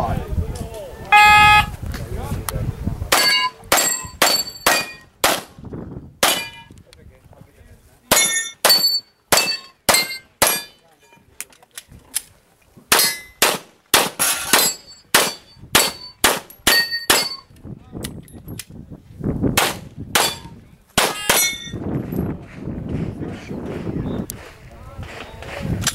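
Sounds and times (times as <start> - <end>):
pistol shots: 3.1 - 5.5, 6.2 - 6.6, 12.9 - 17.4, 19.6 - 21.5
steel targets ringing: 3.2 - 5.1, 8.1 - 10.8, 14.2 - 17.5, 21.1 - 21.8.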